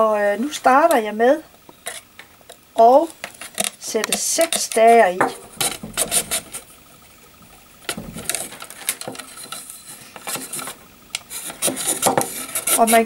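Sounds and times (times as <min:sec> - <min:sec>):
rattan stakes clicking and tapping: 0:01.6 - 0:06.7
rattan rustling: 0:02.8 - 0:13.0.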